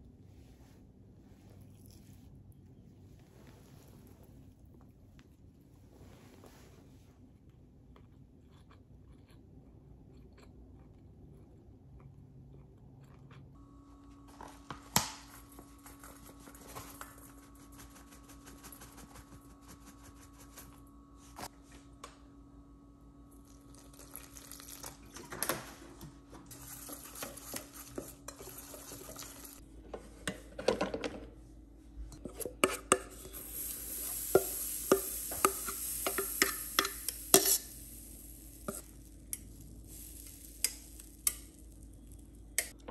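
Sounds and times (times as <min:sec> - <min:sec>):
steady hum: 0:13.5 - 0:25.0, 0:25.8 - 0:42.9
food sizzling in pan: 0:26.5 - 0:29.6, 0:33.1 - 0:42.3
utensils clinking on pots: 0:34.2 - 0:38.0.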